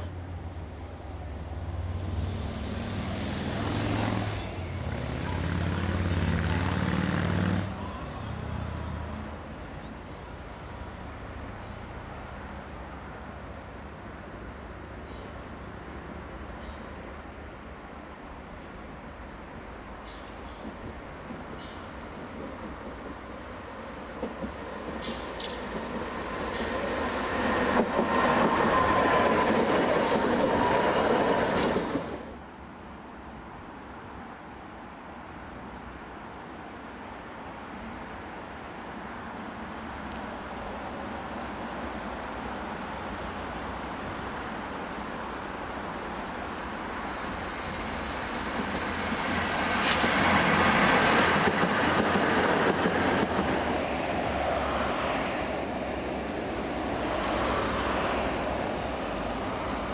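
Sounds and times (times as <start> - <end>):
tram rumbling on rails: 0.0 - 33.4, 34.3 - 59.9
tram wheel squeal: 25.0 - 32.3.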